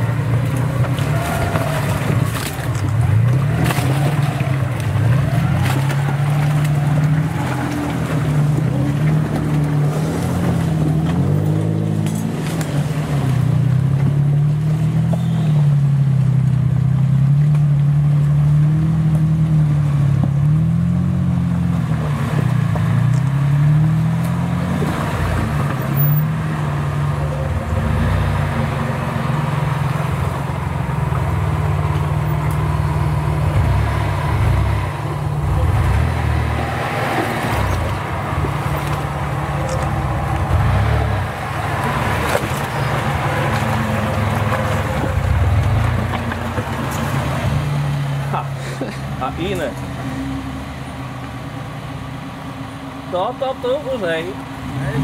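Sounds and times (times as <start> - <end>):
off-road vehicle engine revving: 0.0 - 55.0.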